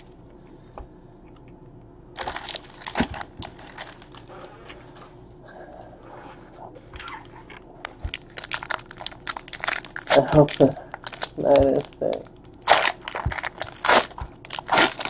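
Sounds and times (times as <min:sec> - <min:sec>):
foil wrapper crinkling: 0:02.2 - 0:04.2, 0:07.8 - 0:15.0.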